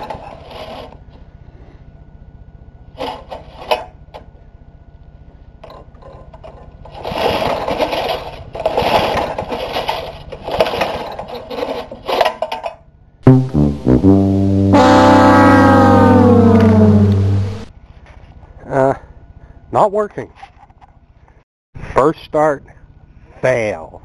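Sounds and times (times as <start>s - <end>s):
lawnmower recoil starter pulls: 6.9s - 12.4s
music: 13.3s - 15.0s
engine turning over: 14.4s - 17.7s.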